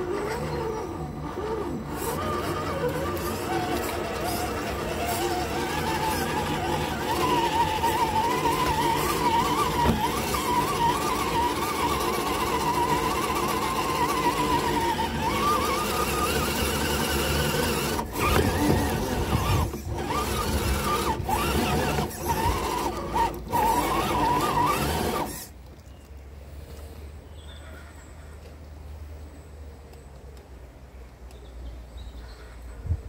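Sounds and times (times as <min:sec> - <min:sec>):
electric motor whining: 0:00.0 - 0:25.6.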